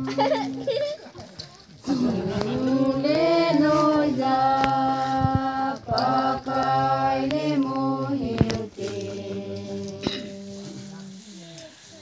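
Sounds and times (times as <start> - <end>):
women singing in unison: 1.8 - 11.1.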